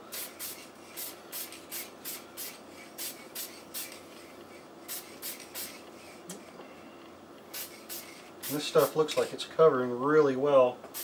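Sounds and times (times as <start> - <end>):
spray paint can hissing: 0.1 - 6.2, 7.5 - 9.3.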